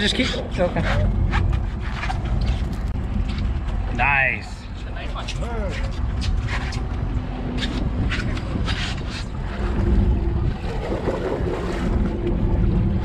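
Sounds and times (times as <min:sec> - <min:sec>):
boat engine rumbling: 0:00.0 - 0:13.0
wind buffeting microphone: 0:00.0 - 0:13.0.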